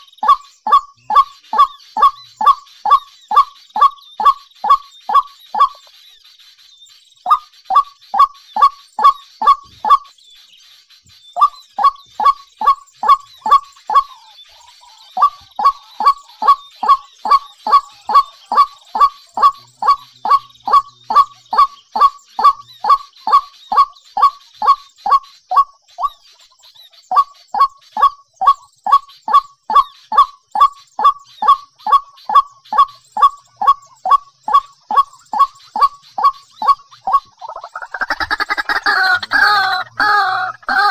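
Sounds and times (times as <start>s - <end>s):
bird honking call: 0.0s - 5.8s, 11.4s - 25.7s, 31.4s - 40.9s.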